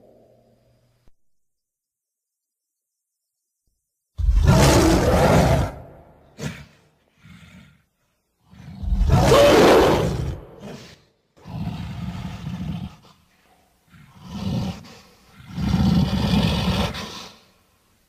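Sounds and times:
beast roaring: 4.2 - 7.7, 8.5 - 13.0, 13.9 - 17.3.

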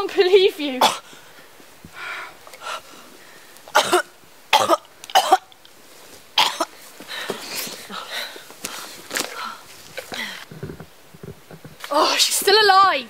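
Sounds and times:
girl coughing: 0.8 - 1.0, 3.7 - 5.5, 6.4 - 6.7
ragged breathing: 6.7 - 10.9.

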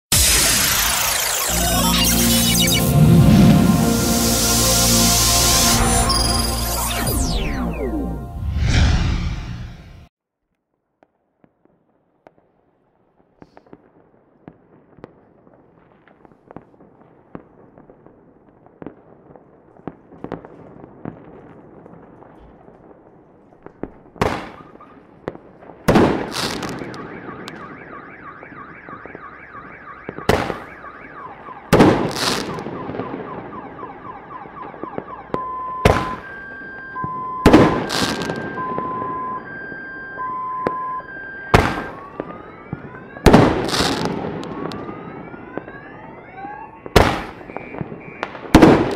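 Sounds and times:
fireworks popping and crackling: 0.1 - 3.0, 11.0 - 45.8, 46.8 - 48.9
two-tone beeping: 0.1 - 8.4, 35.4 - 42.0
fireworks bangs with echoes: 11.0 - 48.9.

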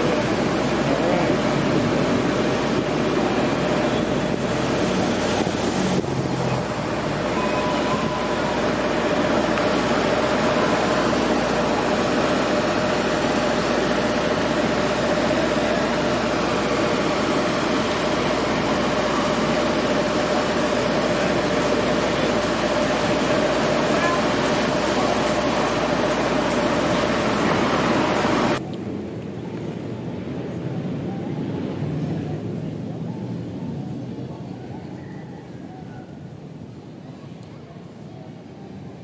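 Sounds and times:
cars passing: 0.0 - 30.6
steady hum: 0.0 - 33.0.

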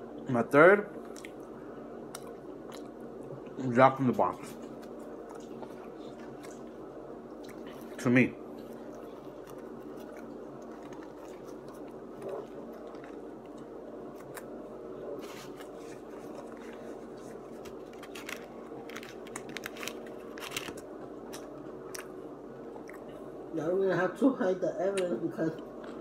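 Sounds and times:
low hum: 0.0 - 26.0
person chewing food: 1.0 - 3.6, 4.4 - 23.3
paper wrapper crackling: 15.2 - 21.5.

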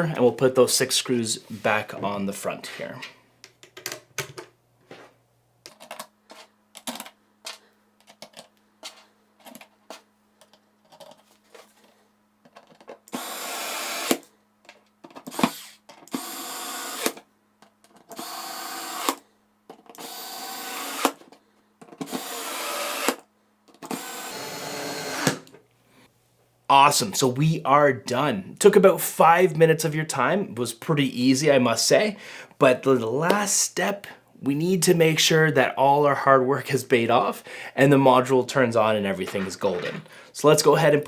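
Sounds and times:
plastic parts clicking together: 5.6 - 11.2
electric screwdriver running: 13.1 - 14.2, 15.3 - 17.2, 18.1 - 19.2, 20.0 - 21.2, 22.0 - 23.2, 23.8 - 25.4.

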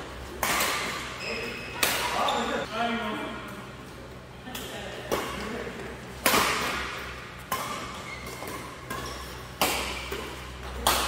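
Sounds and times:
rackets hitting shuttlecock: 0.2 - 2.3, 6.2 - 11.0.

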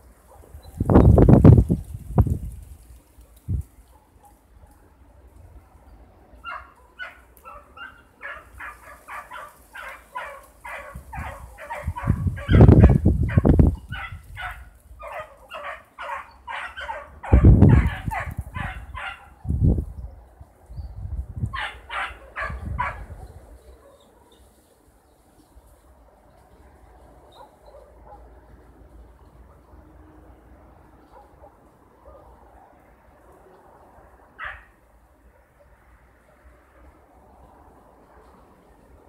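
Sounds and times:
hounds baying: 6.4 - 19.4, 21.5 - 24.6, 34.4 - 34.7.

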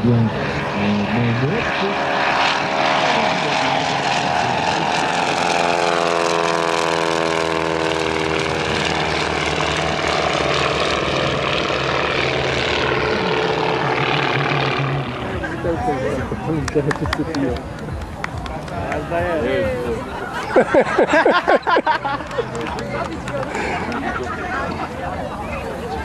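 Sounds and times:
propeller plane engines flying low: 0.0 - 26.0.

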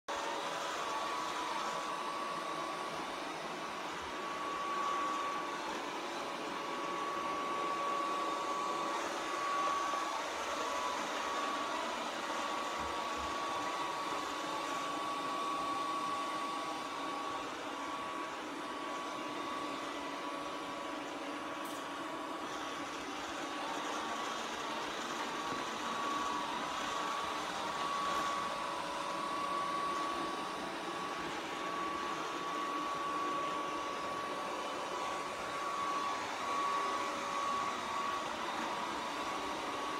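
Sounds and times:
robot vacuum cleaner whirring: 0.1 - 39.9.

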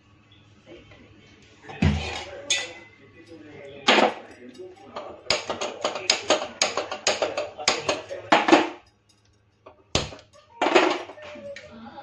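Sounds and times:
metal pots and utensils clattering: 1.7 - 8.8, 9.6 - 11.7.

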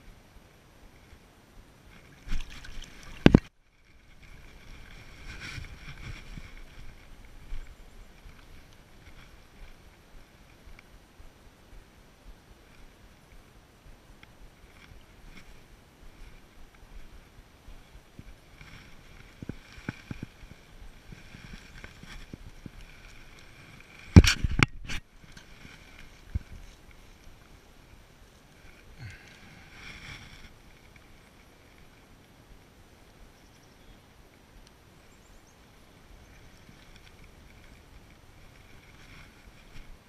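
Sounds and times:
camera handling rustles: 24.1 - 26.8.

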